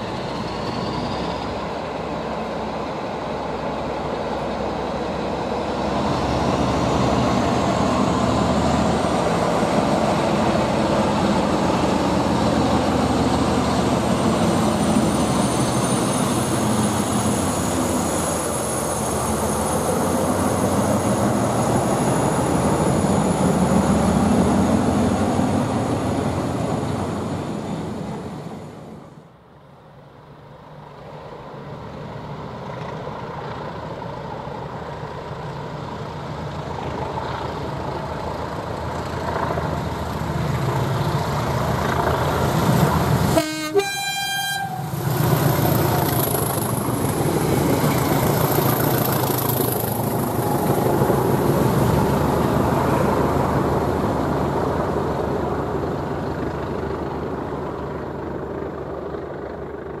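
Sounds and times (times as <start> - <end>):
train rolling: 0.0 - 29.2, 30.9 - 60.0
diesel locomotive engine: 0.0 - 60.0
two-note train horn: 43.4 - 45.0.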